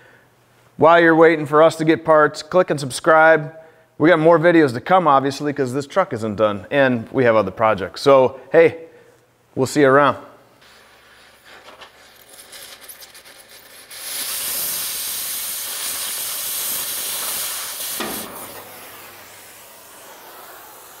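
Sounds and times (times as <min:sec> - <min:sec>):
cutting torch hissing: 0:10.6 - 0:21.0
torch pop: 0:13.8 - 0:21.0.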